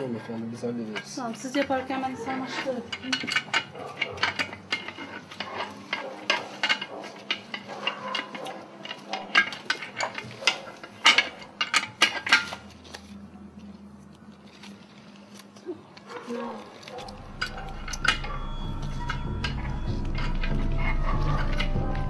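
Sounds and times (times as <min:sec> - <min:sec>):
sharp clicks and knocks: 0:01.0 - 0:13.1.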